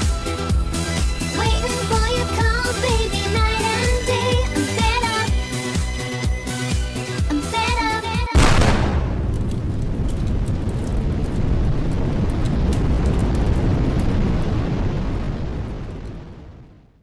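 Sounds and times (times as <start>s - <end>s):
dance-pop music: 1.2s - 5.5s, 6.8s - 8.4s
low rumbling noise with crackles: 8.4s - 17.0s.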